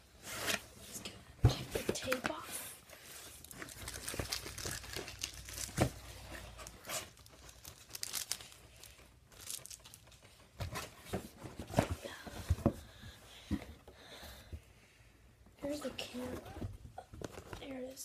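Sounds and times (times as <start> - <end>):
cardboard crinkling: 3.0 - 12.0
packing tape peeling and tearing: 3.4 - 5.8, 6.7 - 10.1.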